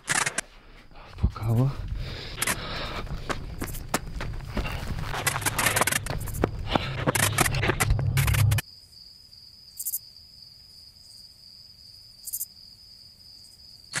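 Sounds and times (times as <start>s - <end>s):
crickets trilling: 0.6s - 14.0s
footsteps through long grass: 2.8s - 7.8s.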